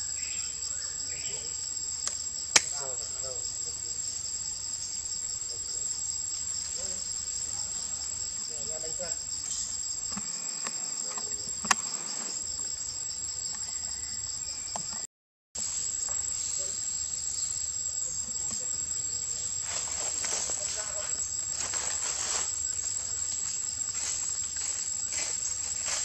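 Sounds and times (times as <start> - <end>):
forest insects droning: 0.0 - 26.0
sharp click: 2.0 - 2.8.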